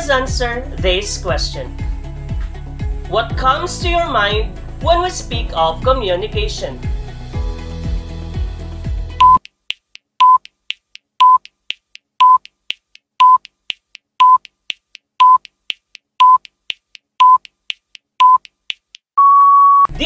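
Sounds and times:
background music: 0.0s - 9.4s
short high beeps: 9.2s - 9.4s, 10.2s - 10.4s, 11.2s - 11.4s, 12.2s - 12.4s, 13.2s - 13.4s, 14.2s - 14.4s, 15.2s - 15.4s, 16.2s - 16.4s, 17.2s - 17.4s, 18.2s - 18.4s, 19.2s - 19.9s.

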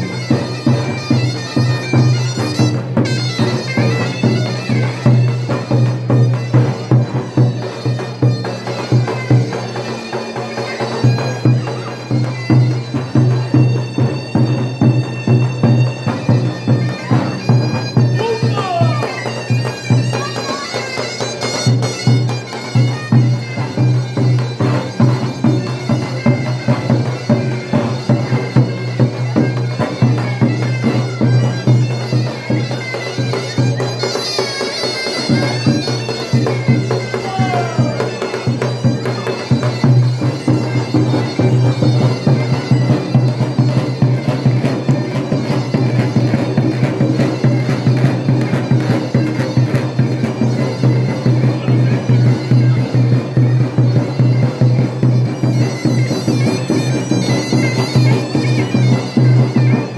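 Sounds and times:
big double-headed drum beat: 0.0s - 34.0s, 35.1s - 59.9s
reedy zurna melody: 0.0s - 59.9s.

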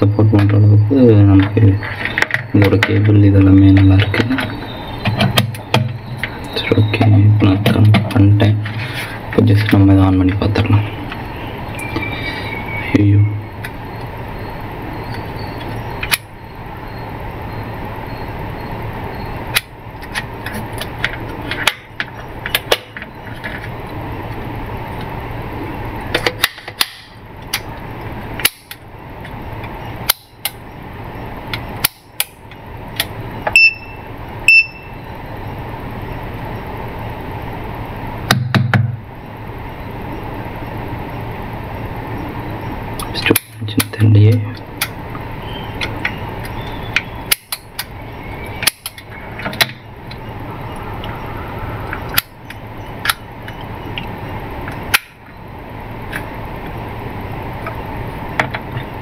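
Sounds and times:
background hum and hiss: 0.0s - 59.0s
short high beeps: 33.5s - 35.0s.

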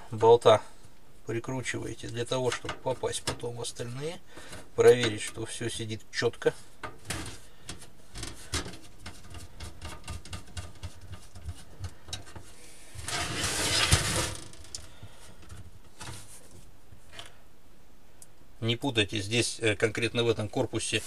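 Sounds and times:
metal case scraping on wood: 12.3s - 14.8s.

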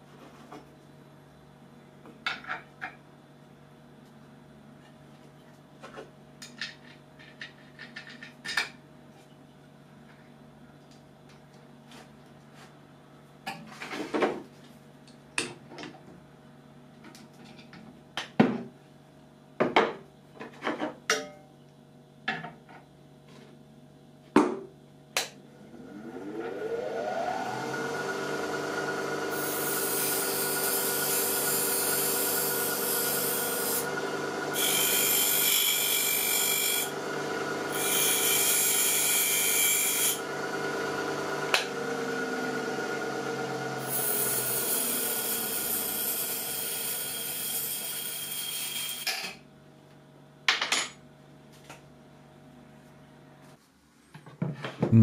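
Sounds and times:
bench grinder motor humming: 25.7s - 49.0s.

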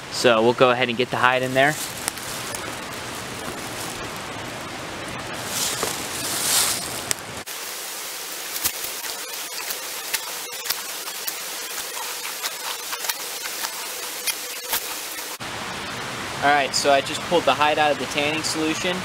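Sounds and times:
steady hiss: 0.0s - 19.0s
wet squelching of hide: 8.5s - 15.4s.

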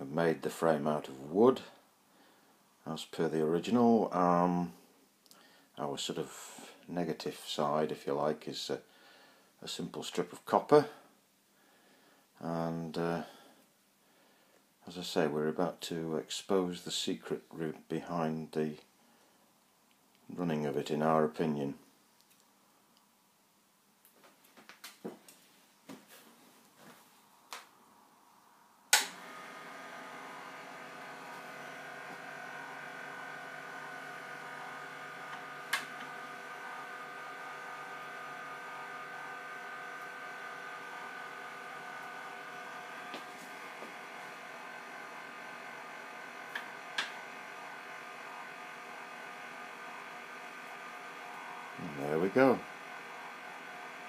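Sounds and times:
sharp clicks: 28.9s - 29.2s
switch click: 28.9s - 29.2s
electric motor humming: 28.9s - 54.0s.

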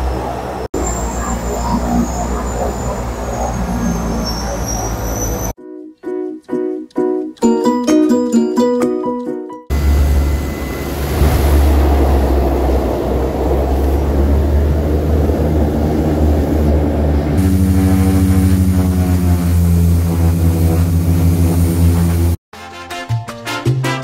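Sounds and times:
turboprop engines droning: 0.0s - 5.5s, 9.7s - 22.4s
rushing spray: 9.7s - 22.4s.

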